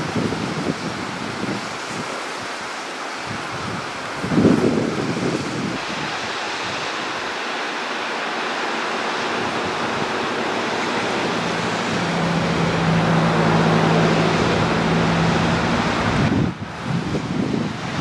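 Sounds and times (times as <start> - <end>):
waterfall rushing: 0.0 - 18.0
passing vehicle engine hum: 8.4 - 18.0.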